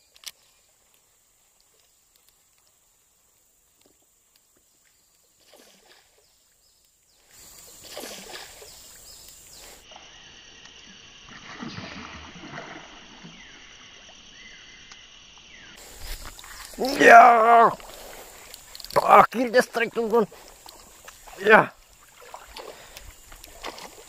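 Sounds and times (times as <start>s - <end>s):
fish splashing at water surface: 7.4s - 10.0s, 11.2s - 13.4s, 19.8s - 24.0s.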